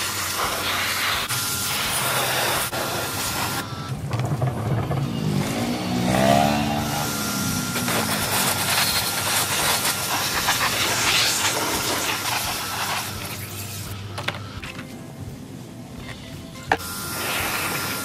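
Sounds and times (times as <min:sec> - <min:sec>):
steady hissing rush: 0:00.0 - 0:03.6, 0:06.8 - 0:14.1, 0:17.0 - 0:18.0.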